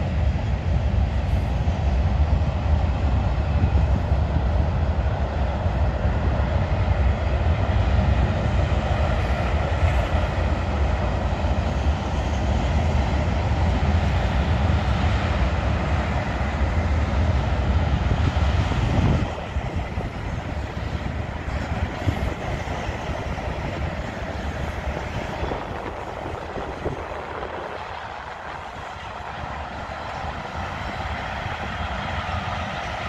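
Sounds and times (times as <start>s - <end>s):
freight train rumbling past: 0.0s - 33.0s.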